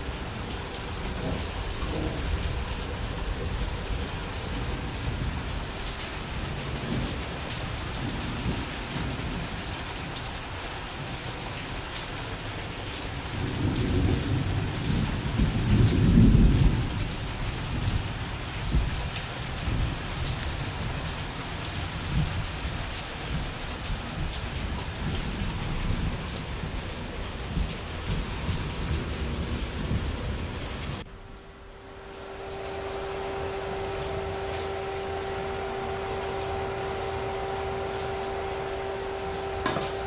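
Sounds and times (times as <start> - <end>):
heavy rain pouring: 0.0 - 40.0
low roll of thunder: 0.8 - 7.3, 13.4 - 20.9.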